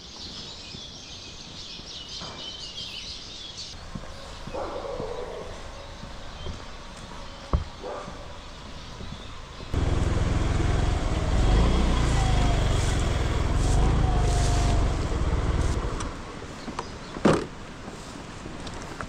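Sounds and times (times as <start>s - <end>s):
vehicle engine running: 9.7s - 16.3s.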